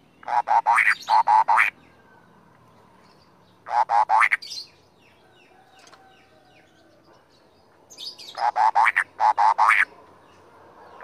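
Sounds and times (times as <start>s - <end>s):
songbird singing: 0.0s - 11.0s.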